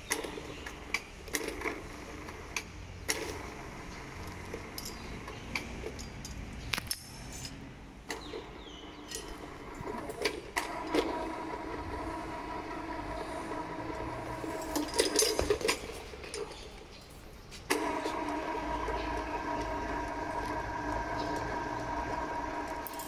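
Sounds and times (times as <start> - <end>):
electric chain hoist humming: 0.0 - 6.5, 8.1 - 16.9, 17.7 - 23.0
metal chain and tongs clinking: 4.7 - 5.2, 5.8 - 6.6, 14.5 - 16.7.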